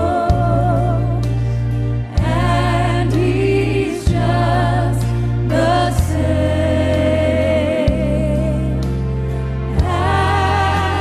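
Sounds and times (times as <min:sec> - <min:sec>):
instrumental accompaniment: 0:00.0 - 0:11.0
woman singing gospel song: 0:09.8 - 0:11.0.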